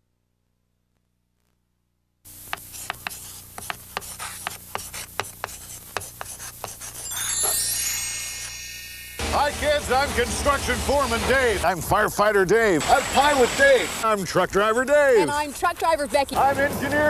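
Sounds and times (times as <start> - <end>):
chalk taps: 2.4 - 7.0
chalk scraping on chalkboard: 2.4 - 7.2, 14.6 - 16.9
shimmering chime: 7.0 - 11.6.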